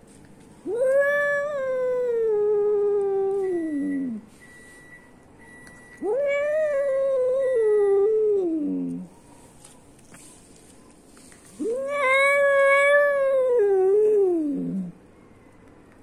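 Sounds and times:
cat yowling: 0.6 - 4.2, 6.0 - 9.1, 11.6 - 15.0.

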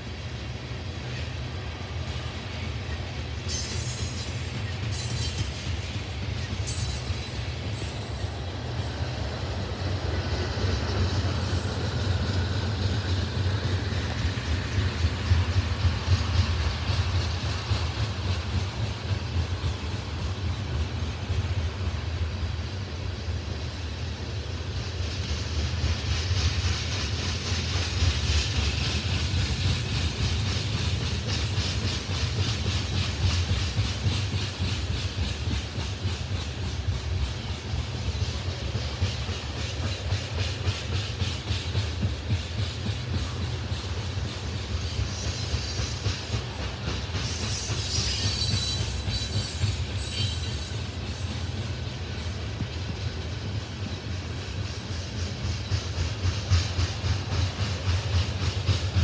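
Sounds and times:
freight train rumbling: 0.0 - 59.0
high-pitched wheel squeal: 47.3 - 51.5.

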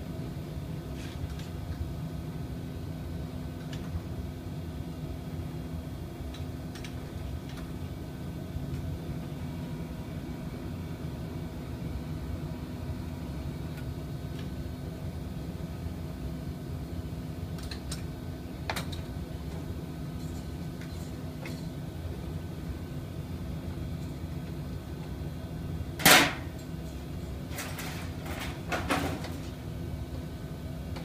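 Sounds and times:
factory machinery humming: 17.6 - 31.0.

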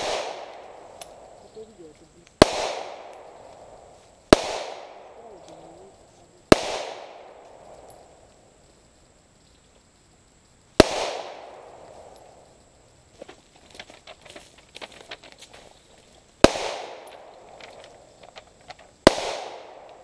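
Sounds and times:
pistol gunshots with echo: 0.0 - 1.4, 2.4 - 5.2, 6.5 - 8.1, 10.8 - 12.4, 16.4 - 17.6, 19.0 - 20.0.

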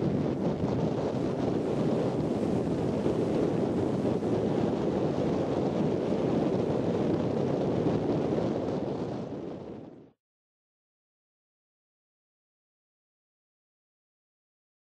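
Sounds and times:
surf breaking on a beach: 0.0 - 10.0
wind buffeting microphone: 0.0 - 10.2.

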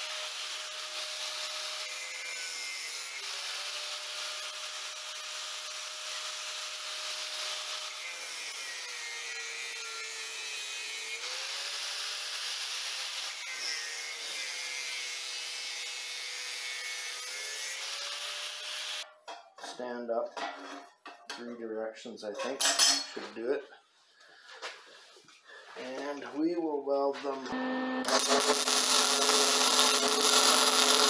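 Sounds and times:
angle grinder cutting steel: 0.0 - 19.0, 27.5 - 31.0.

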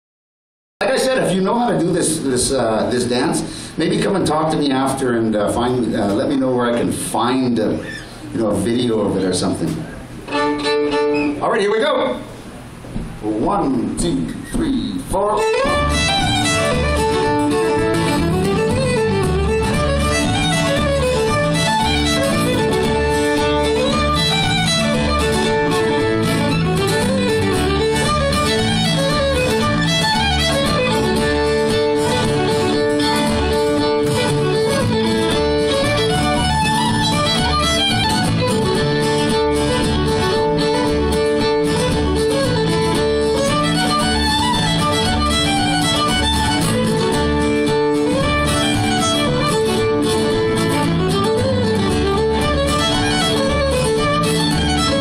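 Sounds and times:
fiddle melody: 10.3 - 11.7, 15.2 - 55.0
strummed acoustic guitars: 15.4 - 55.0
upright bass plucking: 15.4 - 55.0.

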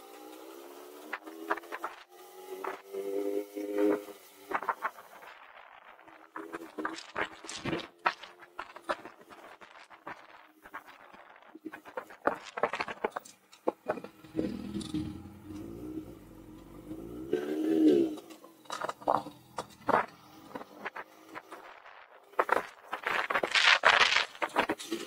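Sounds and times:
motorcycle engine revving: 0.0 - 6.8, 11.8 - 22.6.

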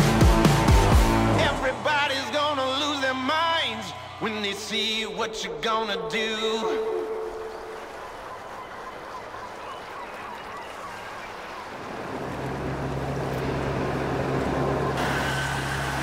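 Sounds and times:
soft sea ambience: 5.5 - 16.0
motorboat engine drone: 6.9 - 16.0.

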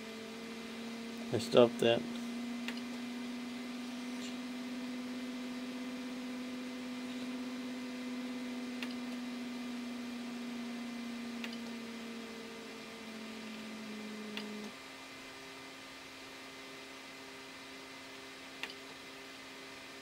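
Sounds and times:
steady electrical hum: 0.0 - 20.0.

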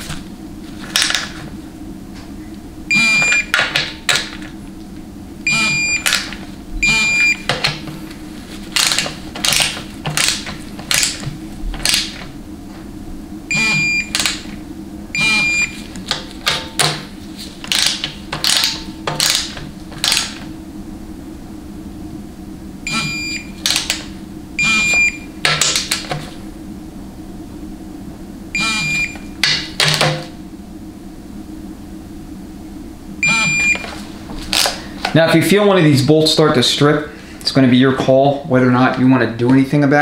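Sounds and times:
high electronic beeps: 2.9 - 3.6, 5.5 - 6.1, 6.8 - 7.5, 13.5 - 14.2, 15.2 - 15.8, 22.9 - 23.5, 24.6 - 25.2, 28.6 - 29.2, 33.2 - 33.9.

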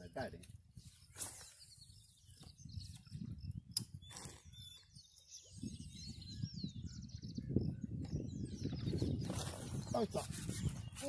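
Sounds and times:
small birds chirping: 0.0 - 11.0
wind rumble on microphone: 0.0 - 11.0.

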